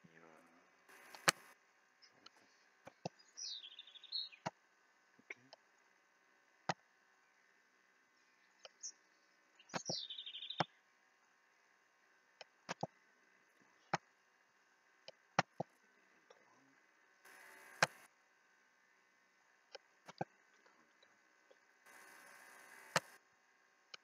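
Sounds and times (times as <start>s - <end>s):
computer mouse clicks: 0.9s - 1.6s, 12.4s - 12.9s, 17.3s - 18.1s, 19.7s - 20.3s, 21.9s - 23.2s
bird call falling chirps: 3.1s - 4.5s, 9.6s - 10.8s.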